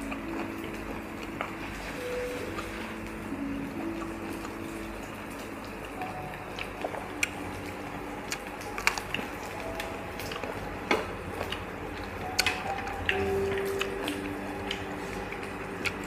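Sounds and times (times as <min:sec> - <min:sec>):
low steady hum: 0:00.0 - 0:16.0
tongs and chopsticks clicking: 0:08.3 - 0:16.0.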